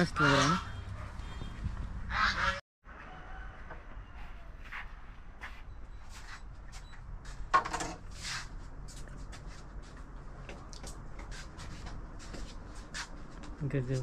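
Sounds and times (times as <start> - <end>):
bamboo door creaking: 7.5 - 8.1.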